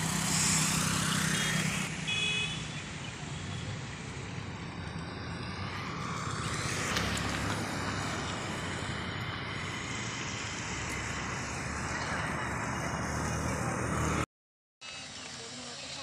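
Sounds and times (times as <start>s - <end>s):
road traffic noise: 0.0s - 16.0s.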